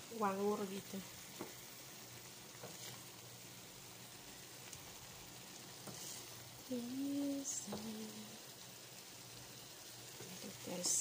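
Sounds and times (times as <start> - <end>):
sauce sizzling and bubbling in pan: 0.0 - 11.0
wooden spatula tapping: 7.7 - 7.9.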